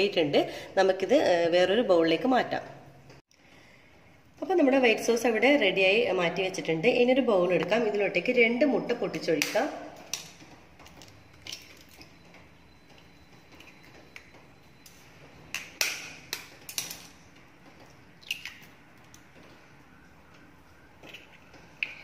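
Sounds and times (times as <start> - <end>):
eggshells breaking: 18.2 - 18.7.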